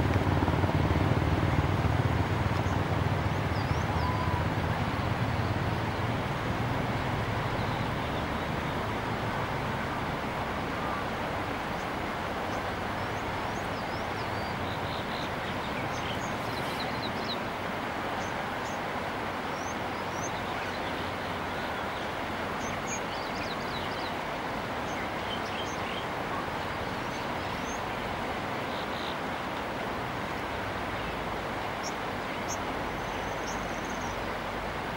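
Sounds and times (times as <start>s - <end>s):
river rapids rushing: 0.0s - 34.9s
small birds chirping: 31.8s - 34.2s.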